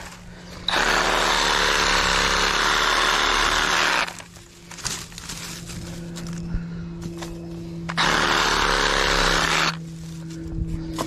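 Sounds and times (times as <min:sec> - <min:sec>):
power saw cutting wood: 0:00.7 - 0:04.3, 0:07.9 - 0:09.9.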